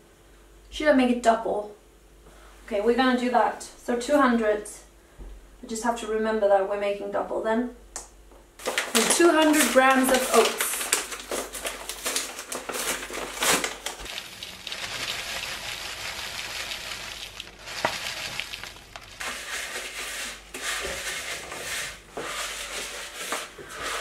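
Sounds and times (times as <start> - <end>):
bag rustling: 8.6 - 19.8
oats pouring into bowl: 12.9 - 21.8
wooden spoon scraping bowl: 14.0 - 24.0.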